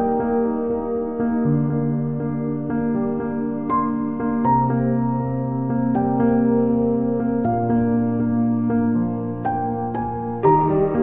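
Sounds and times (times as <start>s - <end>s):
soft ambient music: 0.0s - 11.0s.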